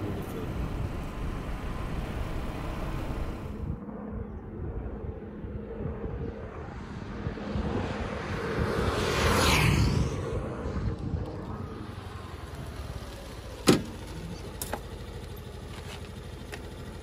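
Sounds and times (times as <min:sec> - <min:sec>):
vehicle engine and road noise: 0:00.0 - 0:17.0.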